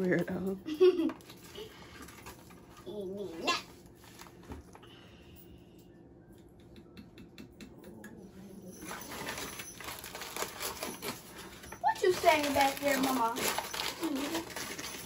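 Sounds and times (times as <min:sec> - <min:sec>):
bag rustling and crinkling: 0:01.2 - 0:04.8, 0:08.7 - 0:15.0.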